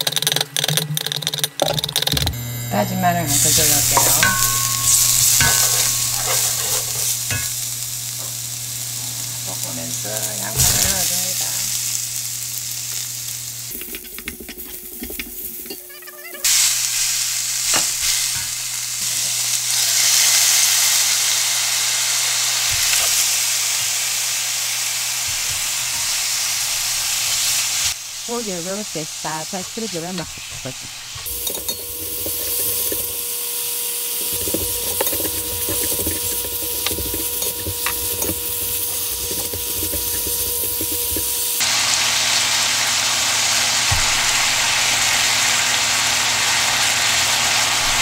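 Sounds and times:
food sizzling in oil: 0:02.3 - 0:48.0
spoon knocking on pan: 0:03.9 - 0:07.6.

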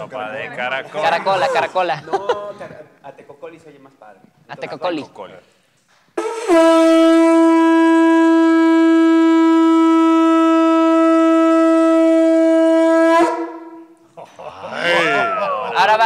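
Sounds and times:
conch shell trumpet note: 0:06.2 - 0:14.0.

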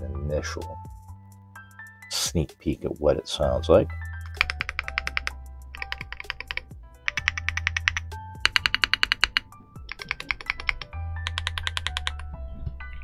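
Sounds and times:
background music: 0:00.0 - 0:13.0
mechanical keyboard typing: 0:04.2 - 0:12.3.

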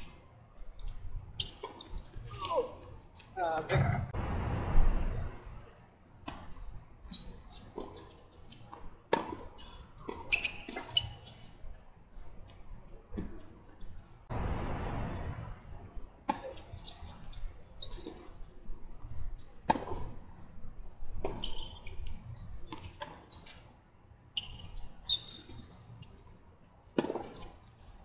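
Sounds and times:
tennis balls bouncing on court: 0:07.8 - 0:11.4, 0:19.7 - 0:20.2, 0:27.0 - 0:27.5.

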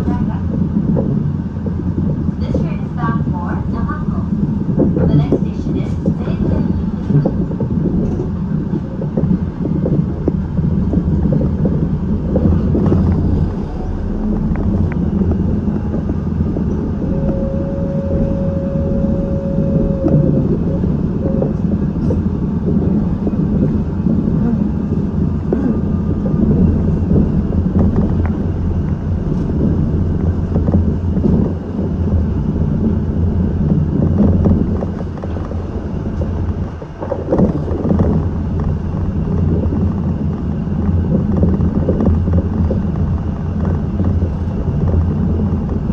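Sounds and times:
rumble of transit car tyres: 0:00.0 - 0:45.9
short steady whine: 0:12.4 - 0:22.0.

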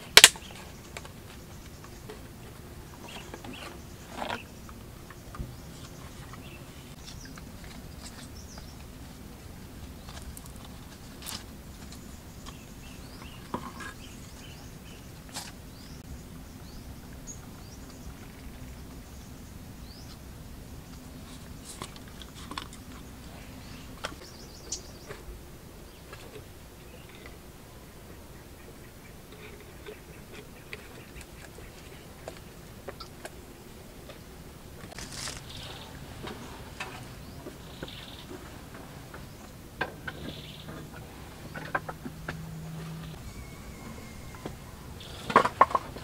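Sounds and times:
low outdoor background noise: 0:00.0 - 0:46.0
faint bird chirps: 0:42.3 - 0:45.9.

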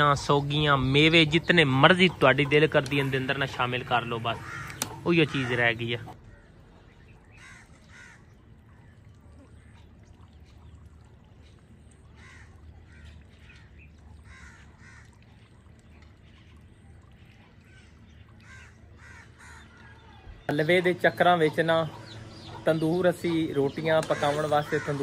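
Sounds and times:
crows cawing: 0:04.0 - 0:06.6, 0:07.3 - 0:08.9, 0:12.1 - 0:15.3, 0:17.7 - 0:20.5, 0:22.0 - 0:25.0.

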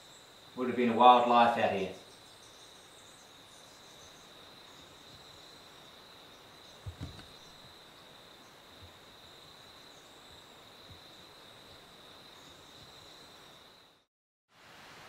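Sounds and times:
soft low thumps: 0:06.8 - 0:07.4.

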